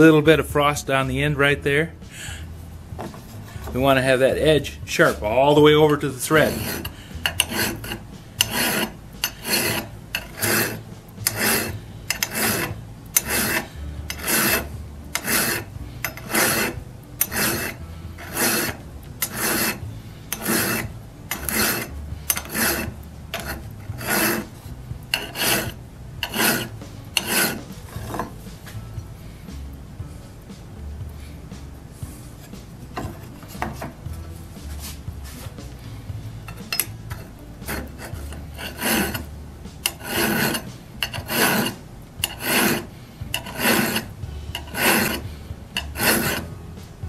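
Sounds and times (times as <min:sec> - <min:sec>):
hand file strokes on steel: 0:05.8 - 0:28.8, 0:32.0 - 0:35.8, 0:36.4 - 0:46.6.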